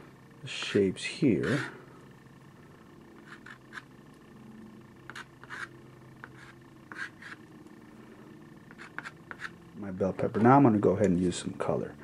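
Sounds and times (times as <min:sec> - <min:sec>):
scratchy drawing strokes on paper: 0:01.4 - 0:01.8, 0:03.2 - 0:03.9, 0:05.1 - 0:07.4, 0:08.7 - 0:09.6.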